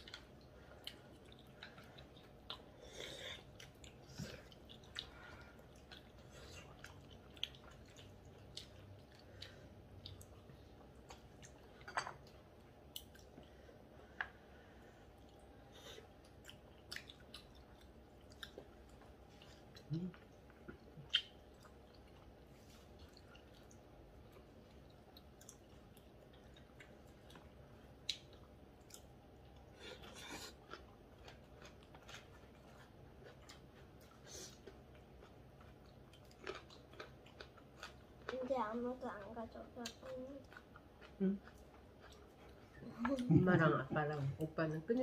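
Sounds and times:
person chewing: 0:00.0 - 0:38.5, 0:39.1 - 0:43.3.

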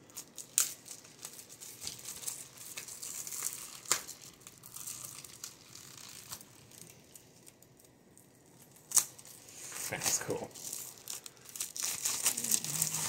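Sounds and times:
plastic shrink-wrap crinkling and tearing: 0:00.0 - 0:13.0.

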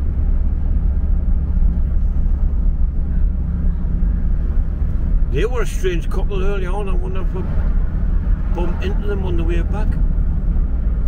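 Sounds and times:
car engine rumble: 0:00.0 - 0:11.0
tyres on road: 0:00.0 - 0:11.0.

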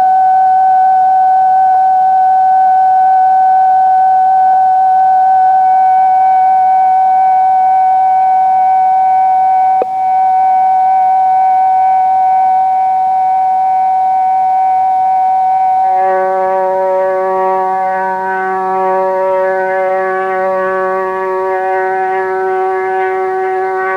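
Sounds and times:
low held chord: 0:15.8 - 0:23.9
sustained musical drone: 0:15.8 - 0:23.9.

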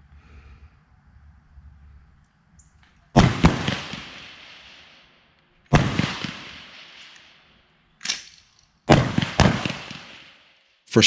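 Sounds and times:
rifle shots ringing out: 0:03.1 - 0:10.7.

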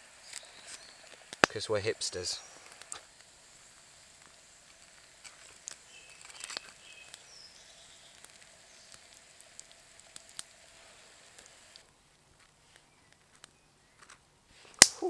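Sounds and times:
bird chirps: 0:00.2 - 0:01.1, 0:05.8 - 0:09.0.

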